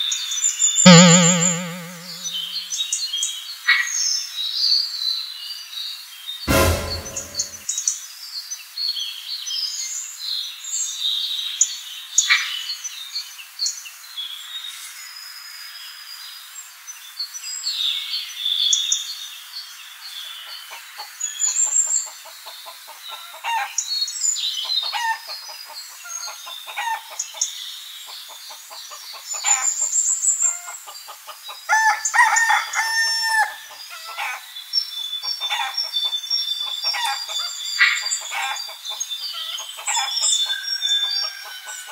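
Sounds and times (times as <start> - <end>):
high bird chirps: 0.9 - 2.5.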